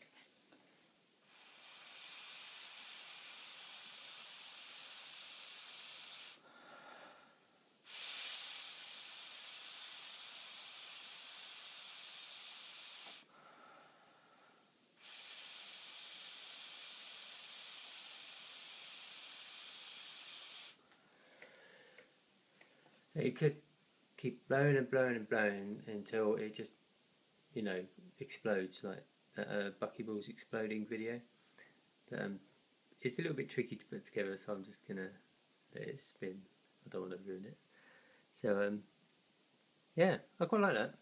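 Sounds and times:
air blown through a straw: 0:01.3 - 0:07.1, 0:07.9 - 0:13.8, 0:15.0 - 0:20.8.

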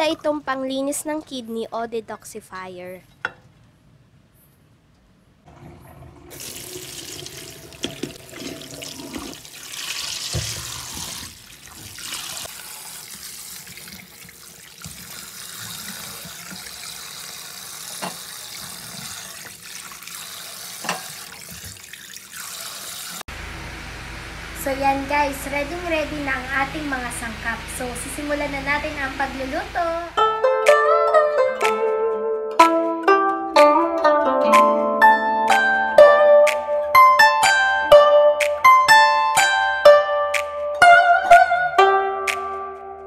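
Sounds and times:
tap water running into bowl: 0:05.5 - 0:23.2.

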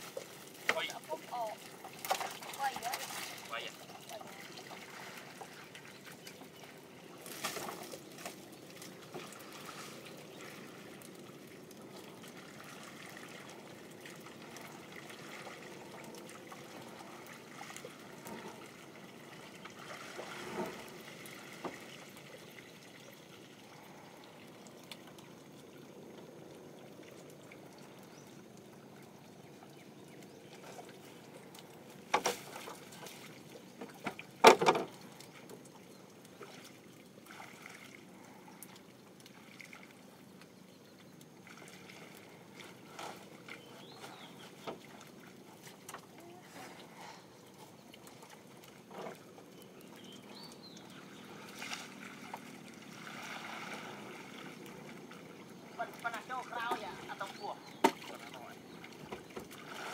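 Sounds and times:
water trickling and lapping: 0:00.0 - 0:59.9
knocks on boat: 0:34.0 - 0:34.9.

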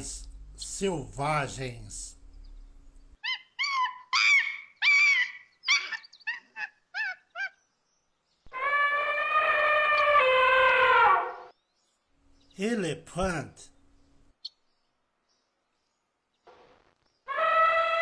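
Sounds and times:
animal yelping calls: 0:03.2 - 0:07.6, 0:08.5 - 0:11.5, 0:17.3 - 0:18.0
long steady lower animal call: 0:03.2 - 0:07.7, 0:08.4 - 0:11.5, 0:17.2 - 0:18.0.

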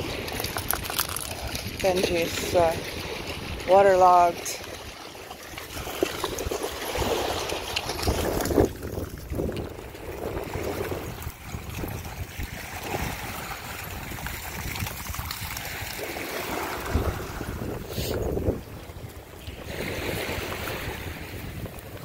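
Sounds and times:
dogs splashing in shallow water: 0:00.0 - 0:22.0.

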